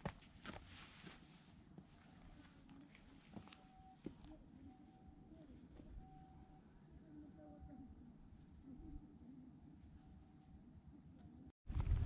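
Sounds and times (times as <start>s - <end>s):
insects chirring: 0.3s - 11.5s.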